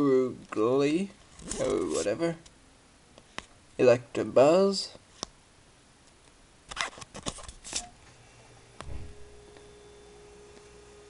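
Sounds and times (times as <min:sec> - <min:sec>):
faint steady hum: 0:00.0 - 0:11.0
cards scraping and flicking: 0:01.3 - 0:02.2, 0:06.7 - 0:07.9.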